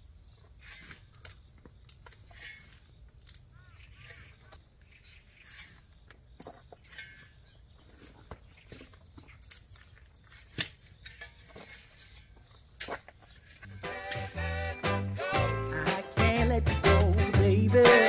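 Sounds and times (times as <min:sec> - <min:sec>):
insects chirring: 0:00.0 - 0:18.0
clicks and rustles in dry ground: 0:00.3 - 0:14.3.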